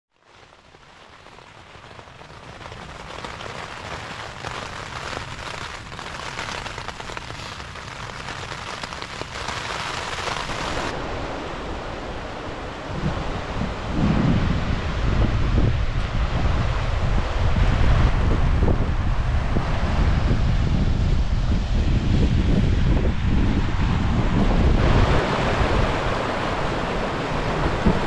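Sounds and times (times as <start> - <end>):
rain drumming on tent: 0.1 - 11.1, 24.7 - 28.0
rush of wind: 1.4 - 28.0.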